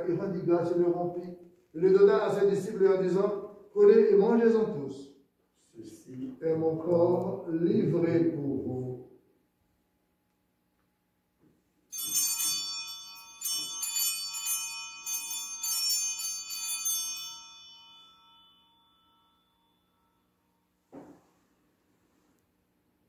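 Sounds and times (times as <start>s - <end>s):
altar bells ringing: 11.9s - 20.7s.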